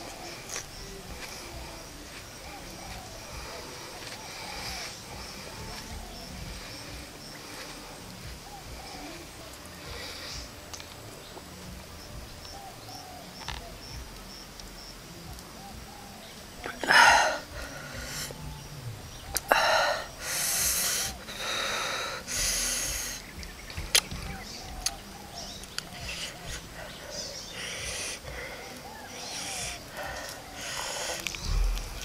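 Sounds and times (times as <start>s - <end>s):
man hissing breath: 0.0s - 10.7s, 16.7s - 18.6s, 19.4s - 23.3s, 26.0s - 32.0s.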